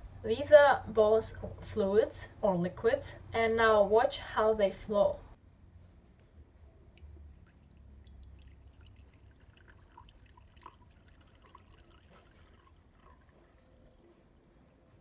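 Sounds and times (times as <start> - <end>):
water pouring into a glass: 6.8 - 14.9.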